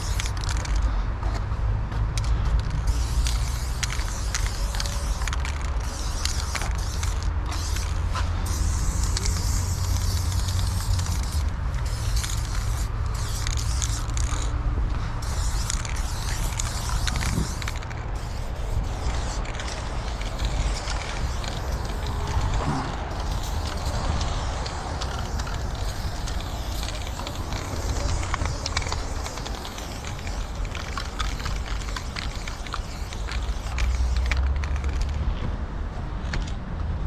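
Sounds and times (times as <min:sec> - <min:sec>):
spray-paint can hissing: 0:00.0 - 0:00.8, 0:02.6 - 0:14.5, 0:15.1 - 0:35.2
steady low rumble: 0:00.0 - 0:36.1.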